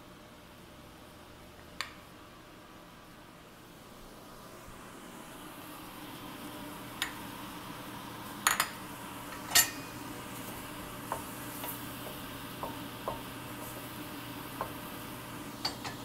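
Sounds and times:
utensil clinking on metal pan: 9.4 - 9.9.

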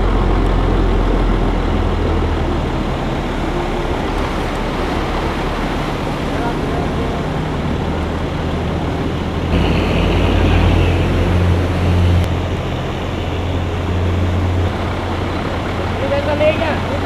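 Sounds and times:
rushing floodwater: 0.0 - 17.0
truck engines rumbling: 0.0 - 17.0.

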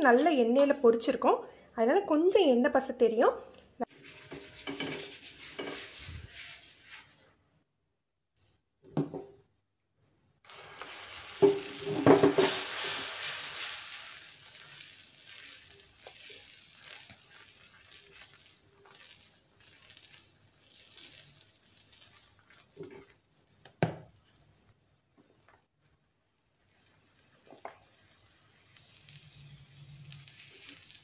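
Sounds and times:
batter sizzling on hot pan: 3.9 - 7.1, 10.4 - 31.0.

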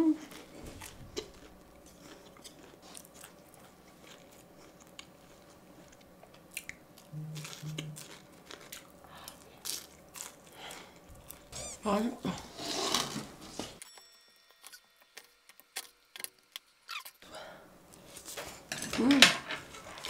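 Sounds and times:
crunchy chewing: 0.2 - 13.2
short low hums: 7.1 - 8.2.

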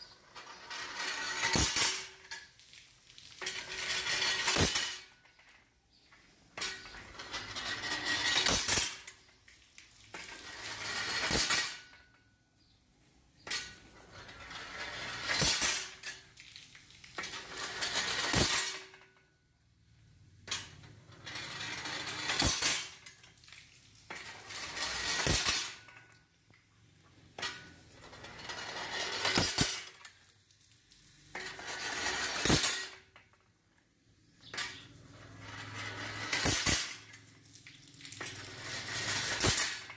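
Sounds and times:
sharp metallic clack: 0.7 - 2.4, 3.5 - 5.3, 6.1 - 9.3, 10.2 - 12.2, 15.0 - 16.2, 17.2 - 19.2, 21.8 - 23.2, 24.2 - 26.1, 29.1 - 30.2, 32.3 - 33.1, 35.8 - 37.2, 38.2 - 39.9.

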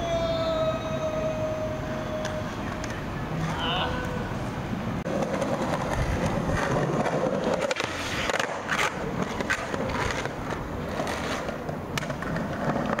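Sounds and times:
skateboard clacking on ground: 2.1 - 4.2, 5.0 - 13.0
skateboard wheels rolling on stone: 5.0 - 13.0.

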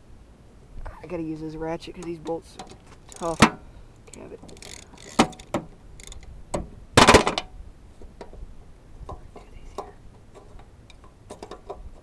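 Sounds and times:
metallic rattle: 2.2 - 7.5
ratchet wrench clicking: 3.1 - 3.4, 4.1 - 6.3.

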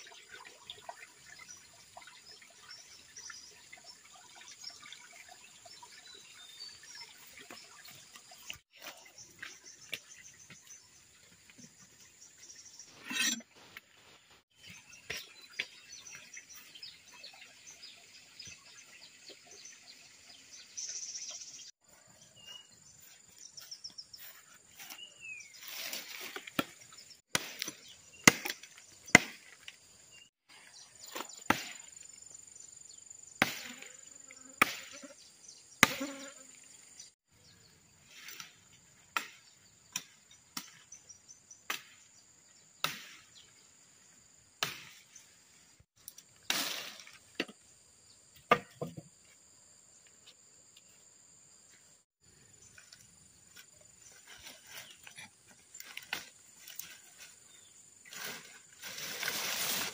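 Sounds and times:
machete chopping wooden pole: 26.3 - 29.6, 33.4 - 33.8, 34.6 - 35.0, 35.8 - 36.1, 42.8 - 43.3, 44.6 - 45.0, 48.4 - 49.1.

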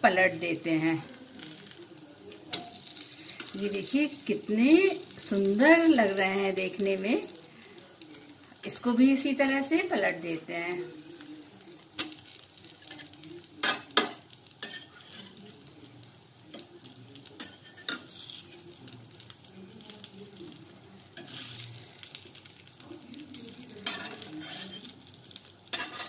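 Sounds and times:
faint sizzle: 0.0 - 26.0
metal spatula scraping griddle: 12.8 - 15.4, 17.4 - 18.6, 21.2 - 21.8, 23.8 - 24.9, 25.7 - 26.0.

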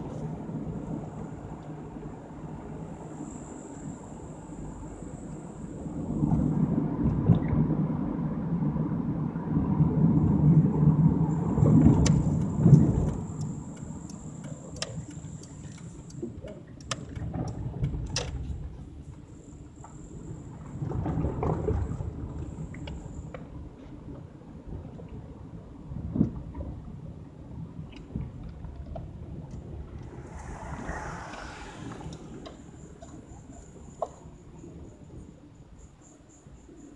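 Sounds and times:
road and engine rumble: 0.0 - 36.9
sharp clicks and rattles: 12.0 - 18.6.

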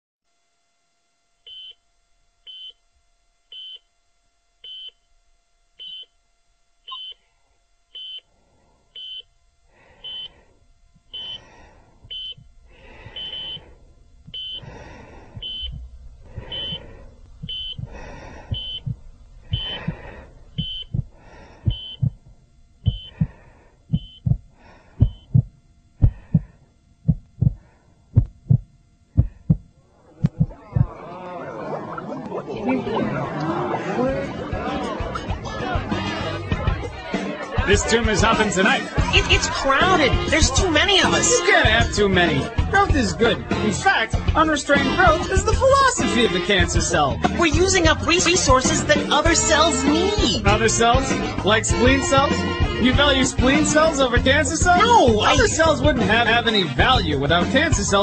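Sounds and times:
heart monitor beeping: 1.5 - 1.8, 2.5 - 2.8, 3.5 - 3.9, 4.6 - 5.0, 5.8 - 6.2, 6.8 - 7.3, 7.9 - 31.0
heartbeat thumps: 12.0 - 31.0.

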